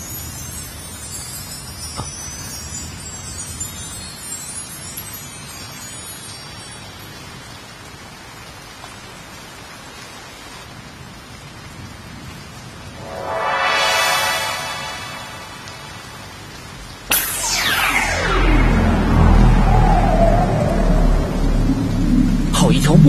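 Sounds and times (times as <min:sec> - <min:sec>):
heavy rain pouring: 0:05.8 - 0:13.1, 0:18.4 - 0:23.0.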